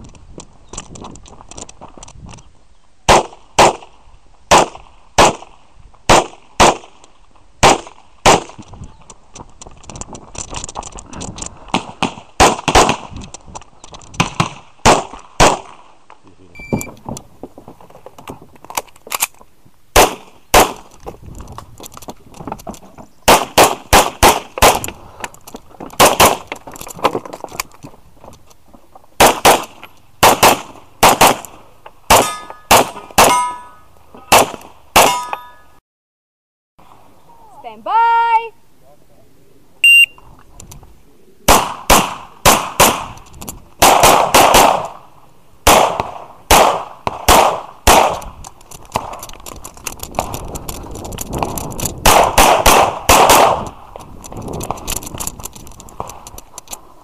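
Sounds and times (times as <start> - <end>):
pistol shots: 3.1 - 3.9, 4.5 - 5.5, 6.1 - 7.0, 7.6 - 8.6, 11.7 - 13.2, 14.2 - 15.9, 20.0 - 20.9, 23.3 - 24.9, 26.0 - 26.5, 29.2 - 35.4, 41.5 - 43.2, 43.8 - 45.0, 45.6 - 48.3, 52.0 - 53.8.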